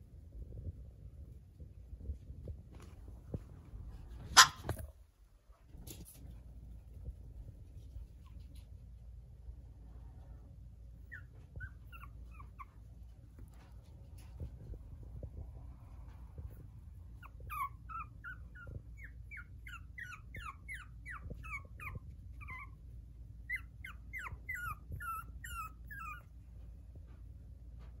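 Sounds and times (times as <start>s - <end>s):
puppy whimpering: 11.1s - 12.8s, 17.2s - 22.8s, 23.5s - 26.4s.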